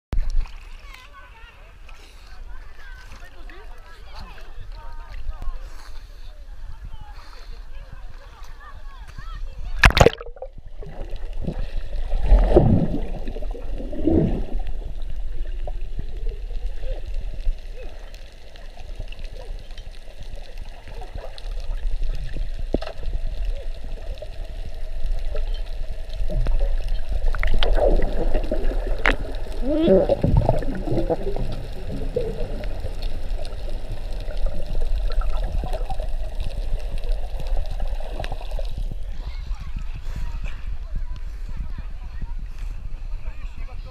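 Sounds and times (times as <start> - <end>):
low underwater rumble: 9.5 - 43.9
underwater gurgling and bubbling: 9.8 - 40.0.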